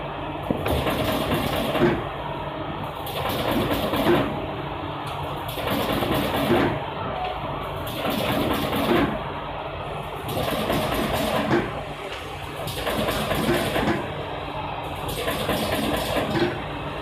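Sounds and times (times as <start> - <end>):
mechanical clatter: 15.0 - 16.6.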